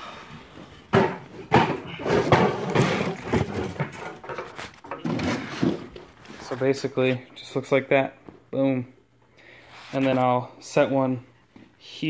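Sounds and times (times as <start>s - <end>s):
wooden boards knocking and clattering: 0.8s - 6.2s.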